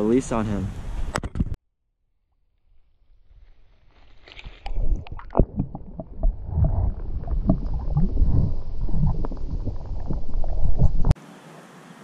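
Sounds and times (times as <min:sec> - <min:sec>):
muffled underwater water rumble: 0:04.6 - 0:11.2.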